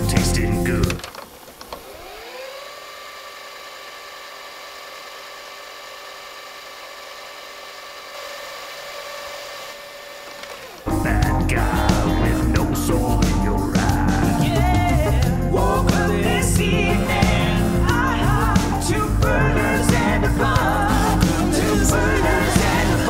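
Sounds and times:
loud rock music: 0.0s - 1.0s, 10.9s - 23.0s
tape transport whine: 0.0s - 23.0s.

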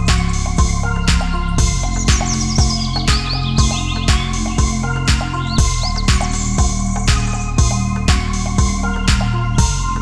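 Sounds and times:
electronic music with kick drum: 0.0s - 10.0s
high bird-like chirps: 1.6s - 7.5s.

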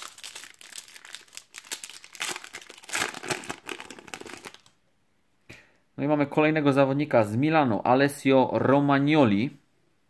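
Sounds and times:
plastic wrapper crinkling: 0.0s - 4.8s.

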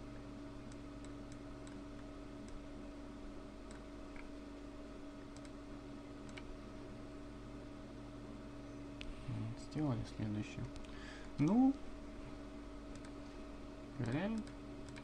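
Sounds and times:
steady low hum: 0.0s - 15.0s
computer mouse clicking: 0.7s - 2.6s, 3.7s - 4.3s, 5.3s - 5.6s, 6.2s - 6.5s, 12.9s - 13.2s, 14.0s - 15.0s.

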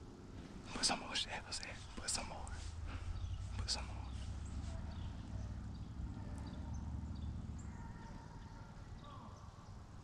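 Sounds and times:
distant animal calls: 2.2s - 10.0s.

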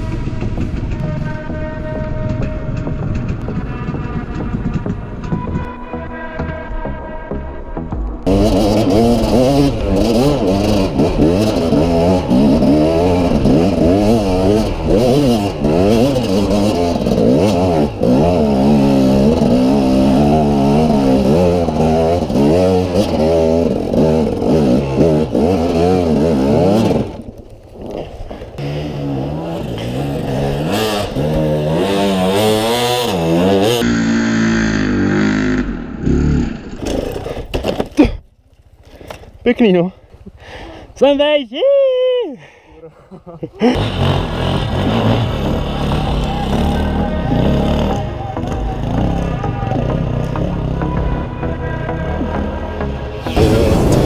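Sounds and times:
dirt bike engine revving: 7.8s - 37.4s, 43.4s - 54.0s.

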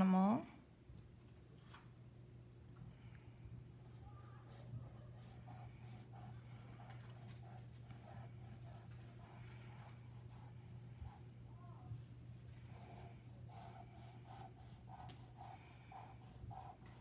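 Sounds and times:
marker scratching on paper: 12.8s - 17.0s.

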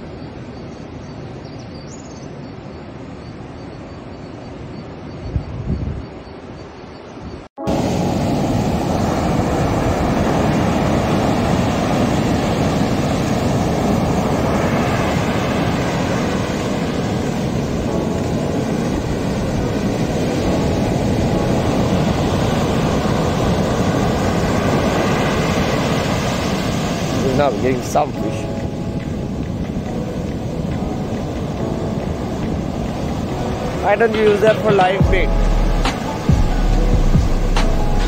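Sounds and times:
wind on microphone: 4.6s - 6.3s
waves breaking on a beach: 7.6s - 35.3s.

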